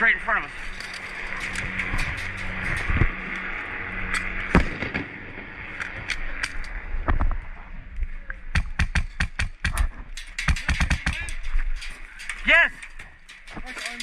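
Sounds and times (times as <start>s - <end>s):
airsoft gunshots: 4.5s - 5.3s.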